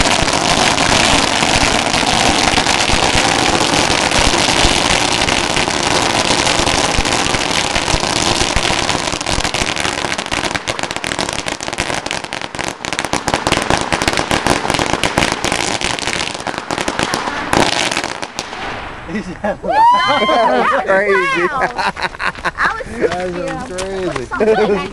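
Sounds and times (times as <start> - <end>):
firecrackers crackling and banging: 0.0 - 19.4.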